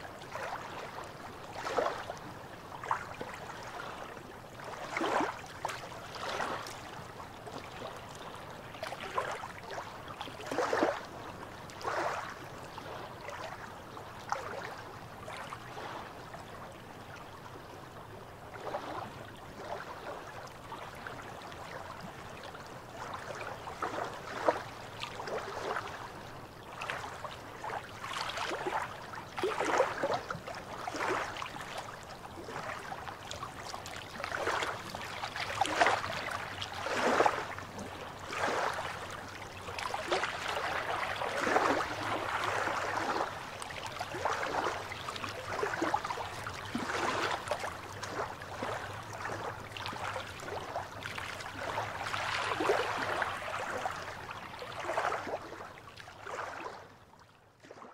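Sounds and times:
small waves lapping on rocks: 0.2s - 16.2s, 18.5s - 56.8s.

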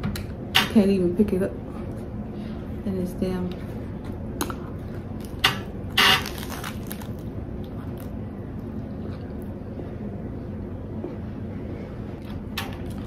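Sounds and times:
lettuce crunching: 6.0s - 9.5s
soft chewing: 7.6s - 9.8s.

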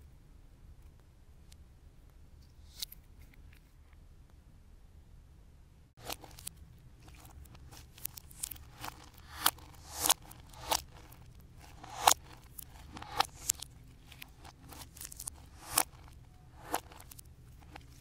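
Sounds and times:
slime squelching and crackling: 6.0s - 18.0s.

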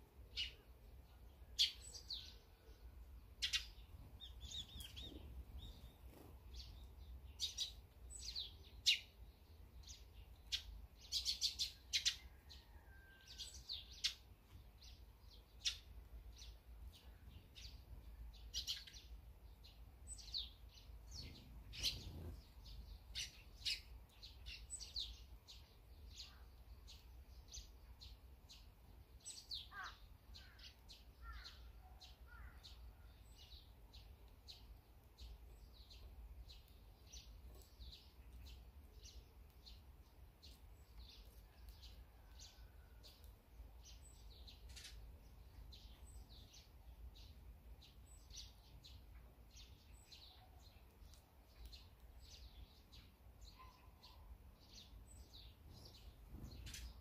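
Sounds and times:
sparrows chirping: 0.0s - 57.0s.

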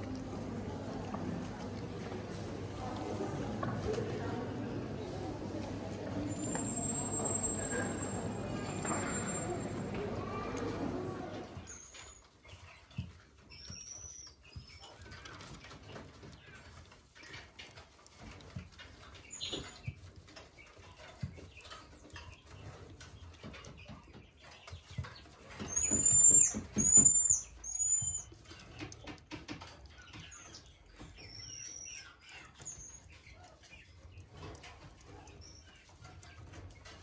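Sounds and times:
marmoset chirping: 25.6s - 28.3s.

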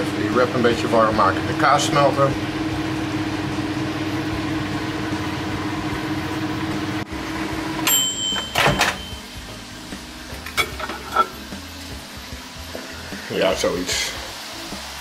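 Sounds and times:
microwave oven humming: 0.0s - 10.4s
timer bell ding: 7.8s - 9.3s
plate clinks: 7.9s - 9.2s
microwave door clack: 8.2s - 9.1s.

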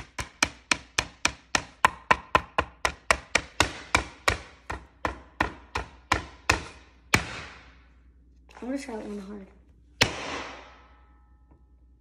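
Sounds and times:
mallet pounding candy in bag: 0.0s - 7.7s.

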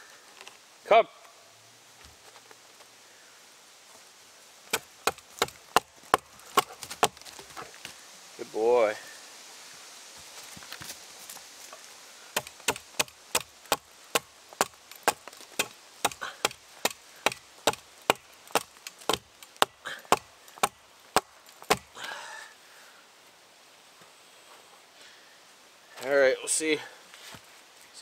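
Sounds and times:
hatchet chopping log: 4.7s - 7.4s, 12.4s - 21.9s.

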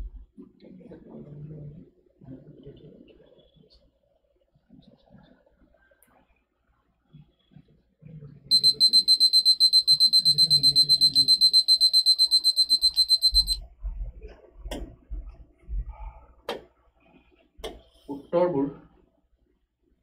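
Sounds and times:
timer alarm beeping: 8.5s - 13.6s.

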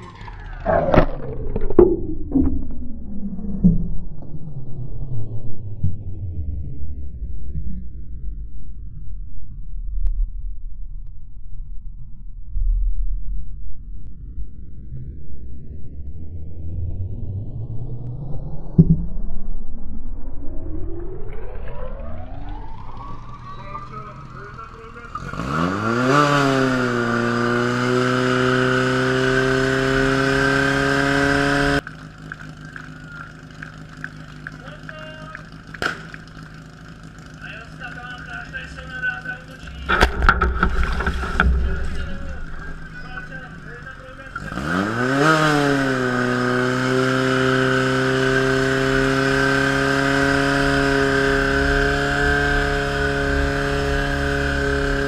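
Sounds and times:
pump engine revving: 0.0s - 3.1s, 21.7s - 55.0s.

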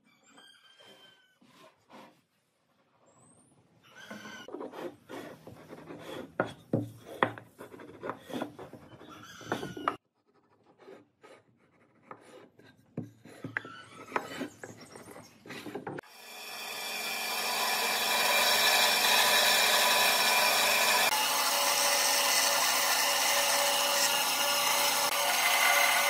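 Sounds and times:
marking gauge scratching wood: 4.5s - 15.8s.

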